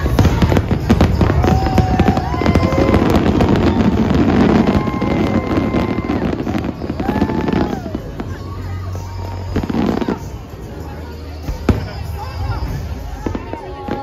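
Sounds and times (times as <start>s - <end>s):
fireworks bangs: 0.0s - 8.6s
fireworks crackling: 0.0s - 14.0s.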